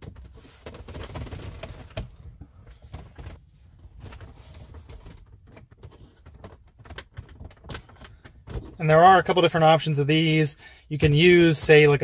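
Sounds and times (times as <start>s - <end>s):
plastic clicks and rubbing: 4.0s - 8.8s.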